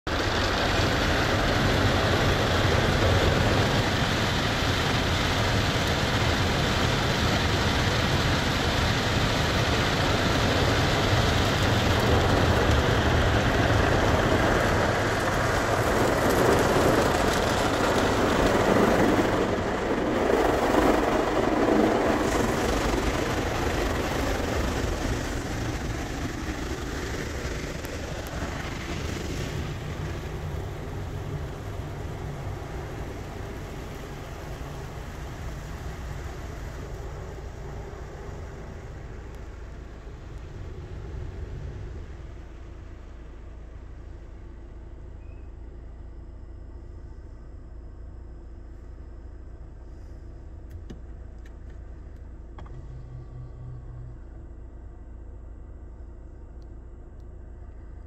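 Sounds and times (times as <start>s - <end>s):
water jets spraying on car: 0.1s - 44.6s.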